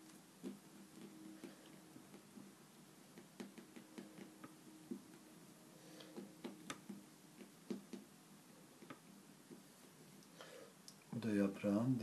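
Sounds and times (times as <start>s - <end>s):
faint low hum: 0.0s - 12.0s
fingers tapping play dough on tile: 0.1s - 5.3s, 6.0s - 8.2s, 8.8s - 10.0s.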